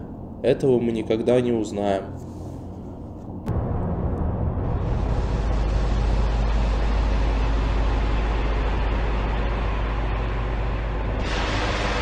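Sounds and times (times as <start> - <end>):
deep rumble: 2.5 - 12.0.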